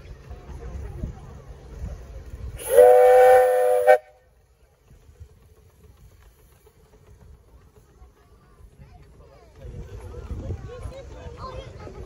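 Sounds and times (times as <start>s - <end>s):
train running rumble: 0.0s - 12.0s
miniature train whistle: 2.6s - 4.3s.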